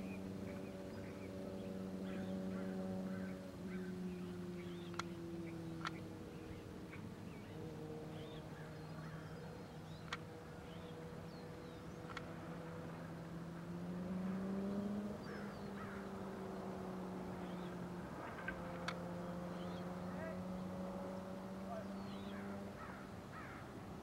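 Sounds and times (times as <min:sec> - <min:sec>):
faint bird chirps: 0:00.0 - 0:13.1, 0:14.3 - 0:23.7
engine hum: 0:00.0 - 0:24.0
sharp clicks: 0:05.8 - 0:06.0, 0:12.1 - 0:12.3, 0:18.4 - 0:19.1.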